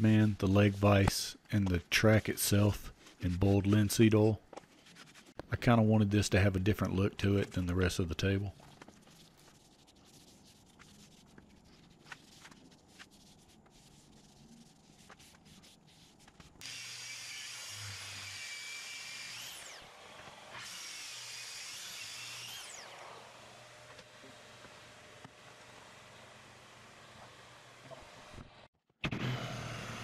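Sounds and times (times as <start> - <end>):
power tool cutting wood: 16.6 - 24.7, 29.0 - 30.0.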